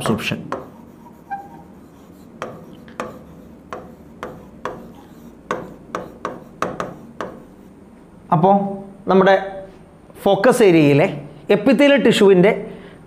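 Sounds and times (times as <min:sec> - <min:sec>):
stylus scratching on a screen: 0:00.5 - 0:07.8
stylus tapping on a screen: 0:02.4 - 0:07.5.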